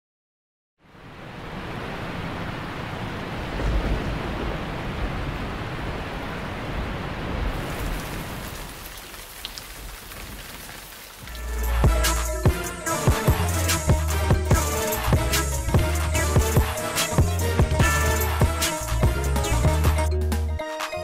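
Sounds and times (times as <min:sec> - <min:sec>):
rain-like rushing noise: 0:00.8 - 0:12.4.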